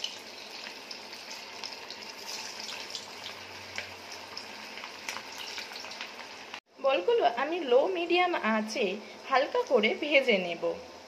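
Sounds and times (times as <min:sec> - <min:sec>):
deep-frying in hot oil: 0:00.0 - 0:11.0.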